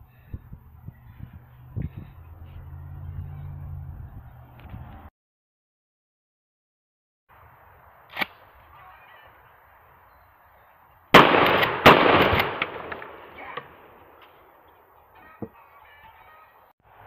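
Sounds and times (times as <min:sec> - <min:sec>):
loud crack: 0:08.1 - 0:08.5, 0:11.1 - 0:14.2
shotgun blast: 0:11.1 - 0:14.0.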